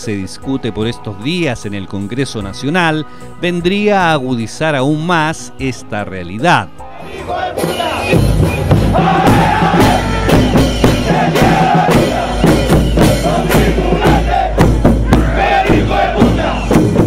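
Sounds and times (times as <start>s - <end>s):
crowd chanting and shouting: 6.7s - 17.0s
sharp beats: 7.6s - 17.0s.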